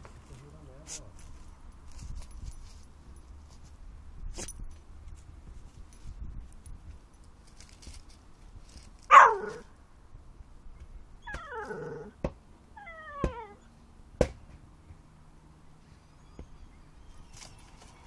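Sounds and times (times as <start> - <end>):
dog yelping and whining: 9.1 - 9.7, 11.2 - 12.2, 12.8 - 13.7.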